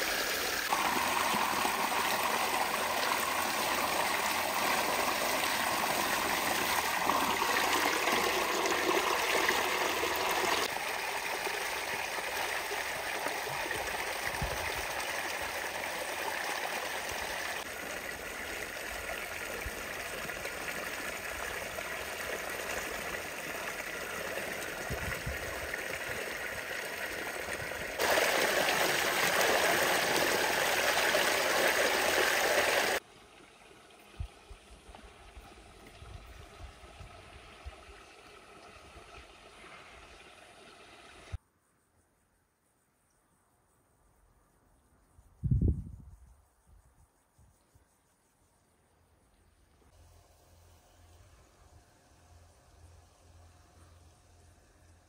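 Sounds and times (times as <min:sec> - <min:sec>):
water gushing from a hose: 0:00.0 - 0:41.4.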